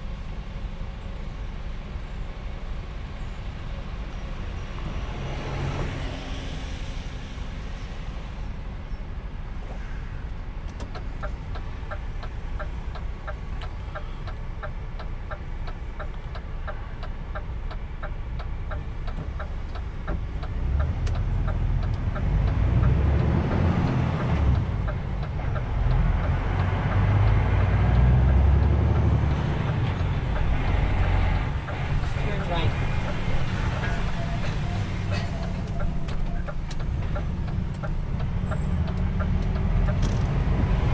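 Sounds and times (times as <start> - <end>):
truck engine running: 10.5 - 40.9
light ticking: 10.6 - 40.9.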